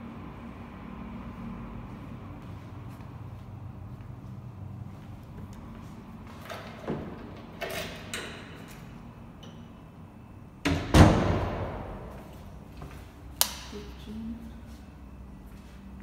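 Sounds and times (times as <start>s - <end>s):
loud thud in tiled room: 10.7s - 12.0s.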